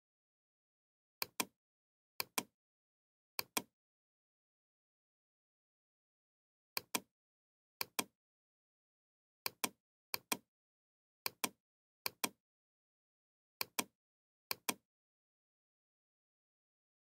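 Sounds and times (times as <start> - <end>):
computer mouse clicking: 2.2 - 2.5, 3.4 - 3.7, 6.8 - 7.1, 7.8 - 8.1, 9.5 - 10.4, 11.3 - 12.4, 13.6 - 13.9, 14.5 - 14.8.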